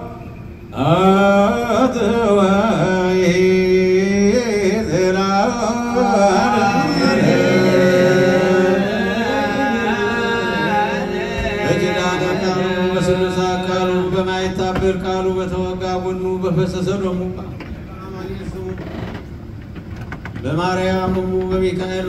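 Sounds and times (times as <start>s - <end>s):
voices chanting unaccompanied: 0.0s - 15.6s.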